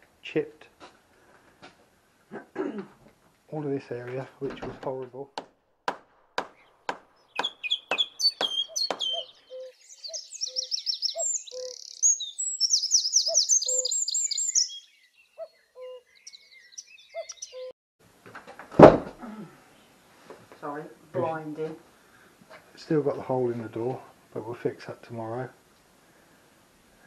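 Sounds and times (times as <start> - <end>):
birds chirping and singing: 6.6 - 17.7
short low bird notes: 7.3 - 12.1
loud thump: 18.7 - 19.2.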